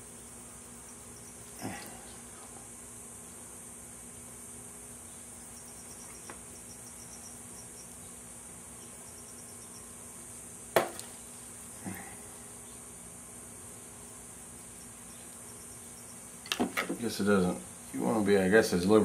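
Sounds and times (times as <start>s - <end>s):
high-pitched hiss: 4.8s - 19.0s
sharp knock: 10.8s - 11.0s.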